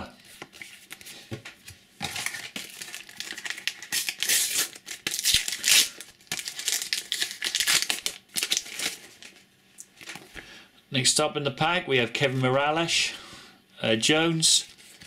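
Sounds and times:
paper packet tearing: 2.0s - 9.3s
wrapper crinkling: 2.0s - 10.3s.

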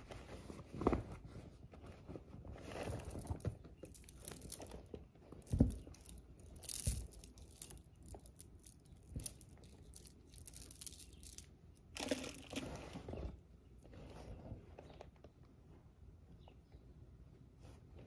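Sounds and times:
canvas bag rustling: 2.2s - 8.4s
soft thumps of handled chain: 5.4s - 11.4s.

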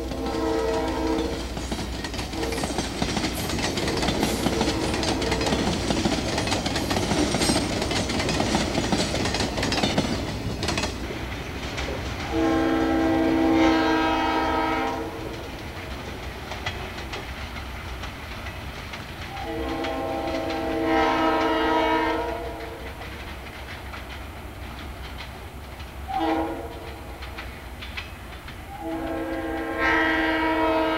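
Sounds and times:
locomotive air horn blasts: 0.0s - 1.4s, 2.4s - 2.7s, 3.9s - 5.6s, 12.3s - 15.4s, 19.4s - 22.8s, 26.1s - 26.9s, 28.7s - 30.9s.

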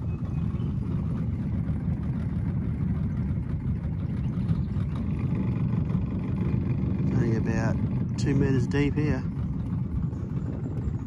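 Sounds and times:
outboard motor low rumble: 0.0s - 11.0s.

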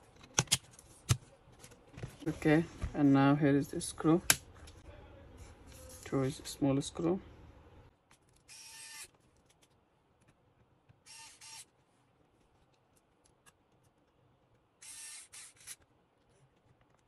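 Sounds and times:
electric screwdriver whirring: 11.0s - 11.7s, 14.8s - 15.8s.

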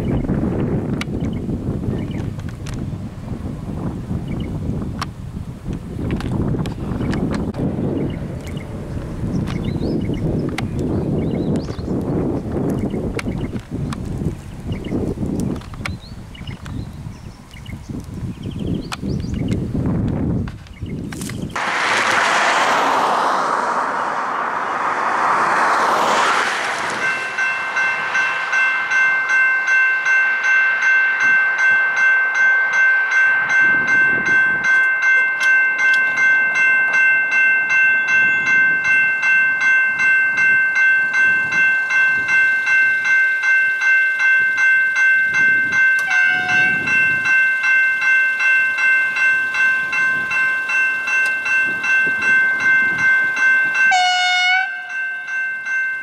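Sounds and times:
car passing: 21.6s - 32.0s
level crossing bells ringing: 25.2s - 56.0s.

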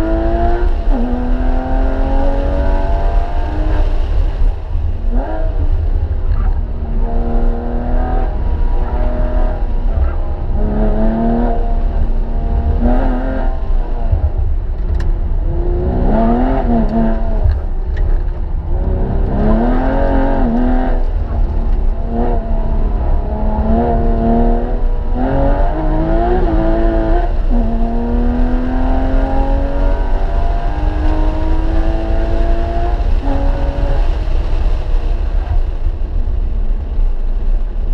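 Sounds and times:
car engine revving: 0.0s - 35.2s
road and wind rumble: 0.0s - 37.9s.

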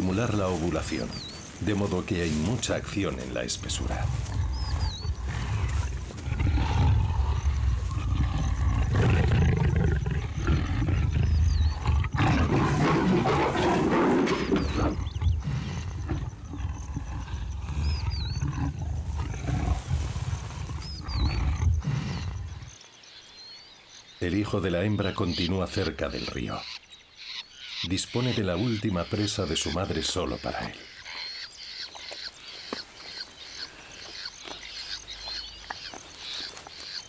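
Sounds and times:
bird chirping: 0.0s - 19.8s, 20.4s - 37.0s
leopards growling: 0.0s - 22.8s.

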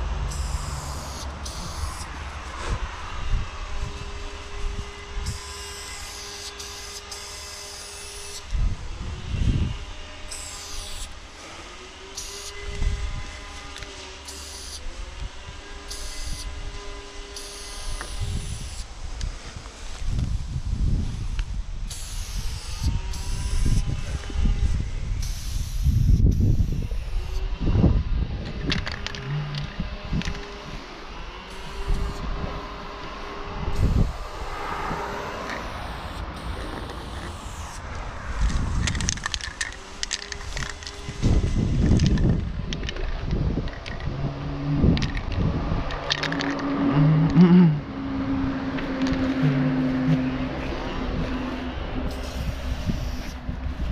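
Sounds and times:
train whine: 0.0s - 25.5s, 26.7s - 53.9s
spray paint can hissing: 0.2s - 2.2s, 5.2s - 8.5s, 10.3s - 11.4s, 12.1s - 12.7s, 13.5s - 14.8s, 15.8s - 16.6s, 17.3s - 19.0s, 21.9s - 24.3s, 25.2s - 27.4s, 31.5s - 32.3s, 33.7s - 42.3s, 52.1s - 53.9s
low rumble: 26.0s - 53.9s.

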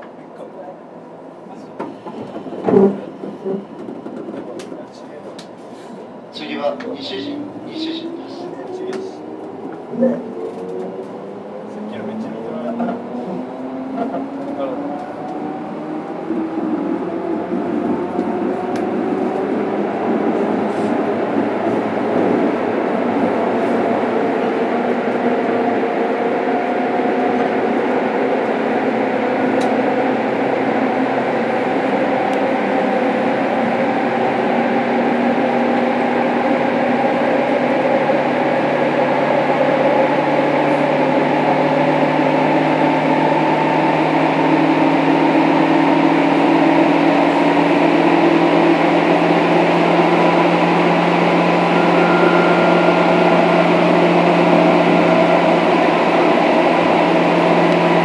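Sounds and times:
train running noise: 0.0s - 58.0s
electric train motors whining: 37.0s - 58.0s.

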